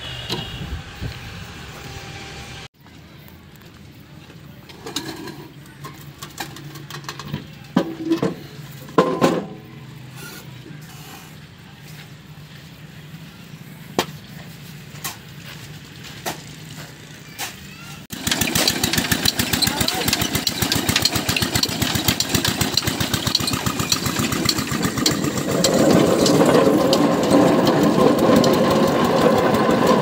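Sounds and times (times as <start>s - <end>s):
metallic knocks and clanks: 18.2s - 30.0s.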